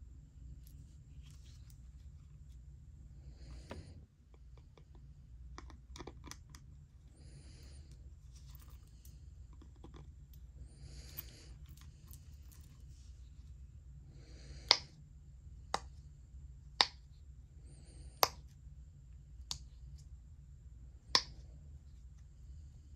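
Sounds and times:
faint handling: 0.6s - 2.7s, 7.8s - 13.6s.

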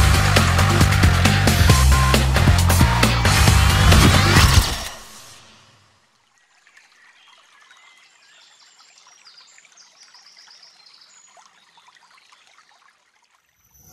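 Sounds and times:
music track: 0.0s - 5.6s.

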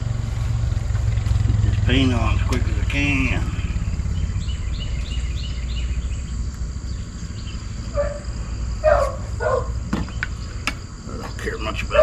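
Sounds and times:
low rumble: 0.0s - 8.6s
high insect drone: 0.0s - 12.0s
insect chirps: 0.0s - 12.0s.

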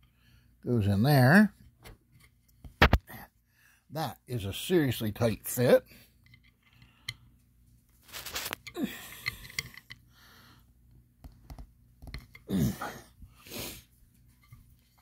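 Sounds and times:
person grunting with effort: 8.8s - 9.1s, 12.5s - 13.1s.

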